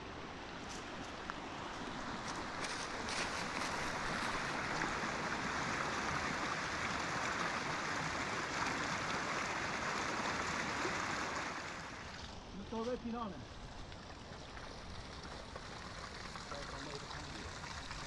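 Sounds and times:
stream water rushing: 0:00.0 - 0:12.8.

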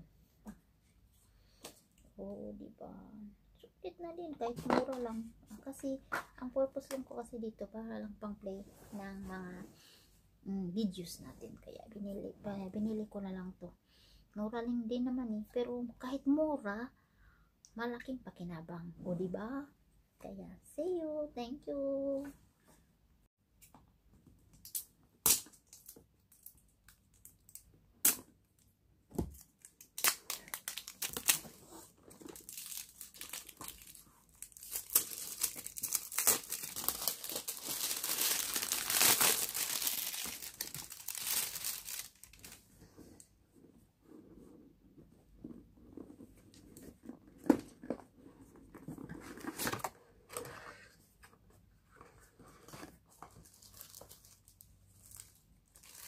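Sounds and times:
packaging tearing and crinkling: 0:29.4 - 0:42.6, 0:53.5 - 0:56.0.

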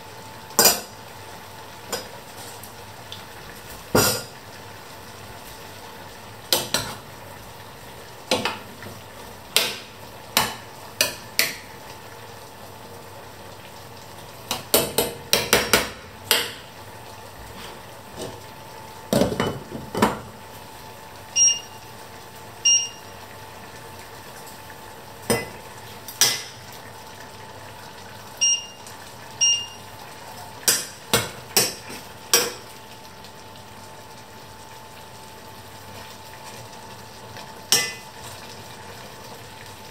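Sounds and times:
pots boiling and bubbling: 0:00.0 - 0:39.9
pots and lid clanking on hob: 0:03.9 - 0:04.4, 0:19.1 - 0:20.3.

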